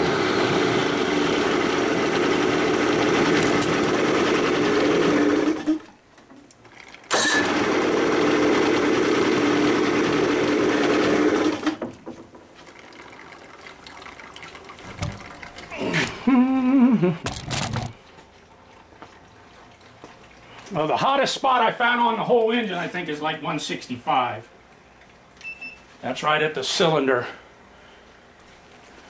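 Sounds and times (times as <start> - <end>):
outboard engine running: 0.0 - 5.8.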